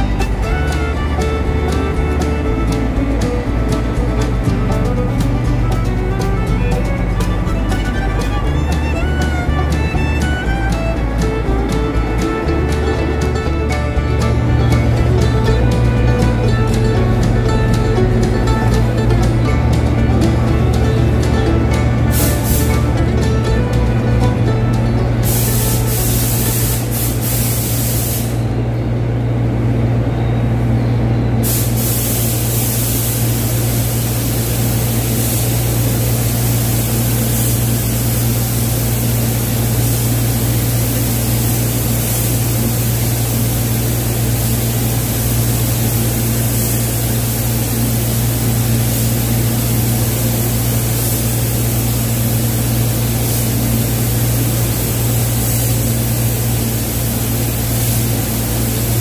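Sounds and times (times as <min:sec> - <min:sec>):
steady low hum: 0:00.0 - 0:59.0
spray gun hissing: 0:22.0 - 0:23.0, 0:25.1 - 0:28.5, 0:31.4 - 0:59.0.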